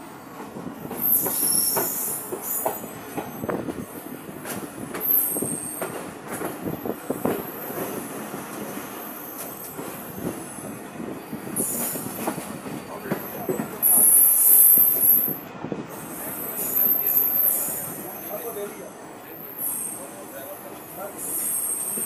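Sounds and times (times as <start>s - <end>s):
train wheels clattering on track: 0.3s - 17.9s.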